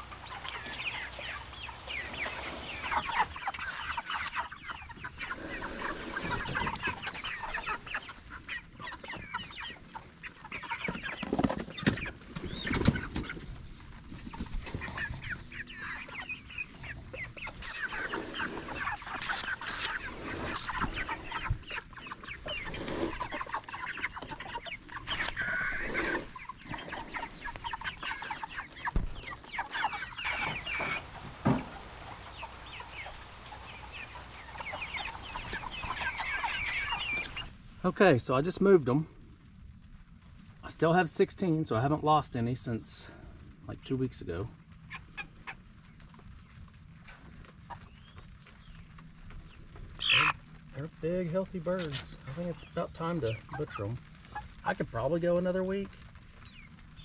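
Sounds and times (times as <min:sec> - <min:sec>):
chickens clucking and peeping: 0:00.0 - 0:57.0
wooden pen dragged over grass: 0:05.3 - 0:06.7, 0:17.9 - 0:21.3, 0:22.5 - 0:23.4, 0:25.2 - 0:27.4.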